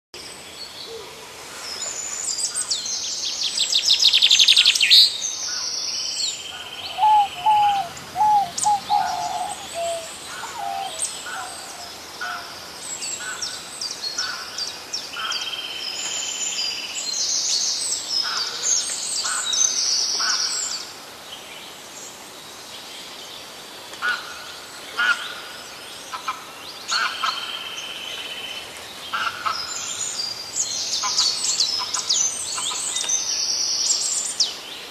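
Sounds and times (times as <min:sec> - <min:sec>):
birds chirping and twittering: 0:01.7 - 0:20.8, 0:26.7 - 0:34.9
low whistled bird notes: 0:06.7 - 0:11.9.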